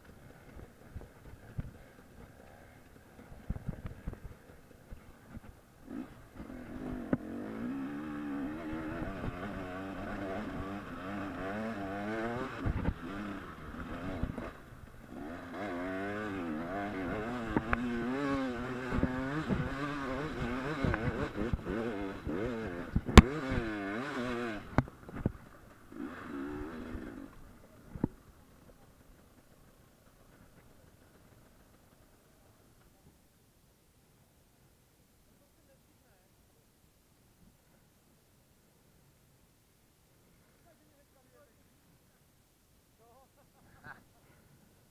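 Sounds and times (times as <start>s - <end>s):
dirt bike engine revving: 0.1s - 28.1s
sharp knocks over rough ground: 17.2s - 18.0s, 18.9s - 23.8s, 24.6s - 25.7s.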